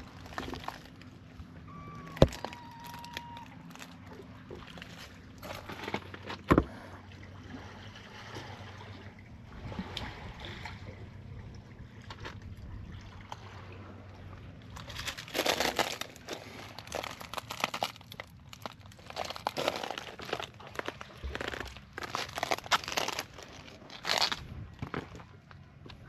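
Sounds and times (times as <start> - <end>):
crackling rustle: 0.0 - 1.2, 2.0 - 6.4, 14.7 - 26.0
low steady hum: 0.0 - 26.0
sea water sloshing: 0.0 - 26.0.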